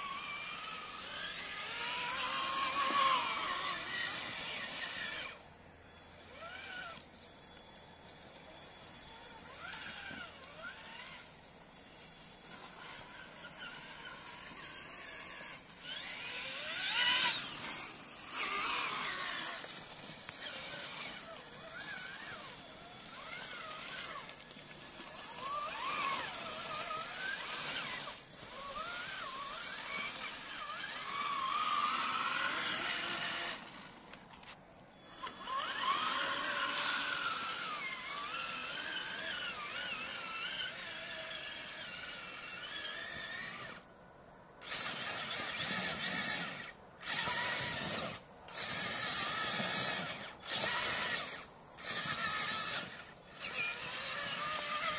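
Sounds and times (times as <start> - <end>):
rc truck electric motor whining: 0.0 - 43.9, 44.6 - 54.9.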